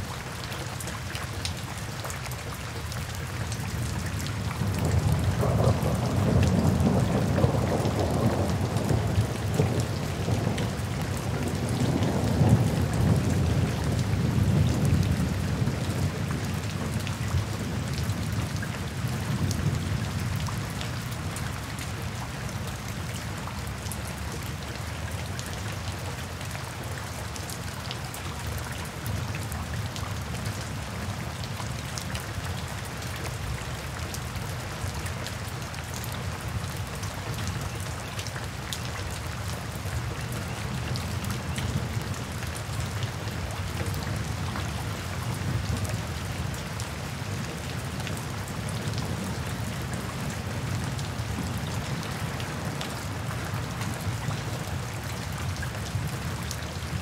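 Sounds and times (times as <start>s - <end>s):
rain falling in woodland: 0.0s - 57.0s
thunder rumble: 4.8s - 10.2s.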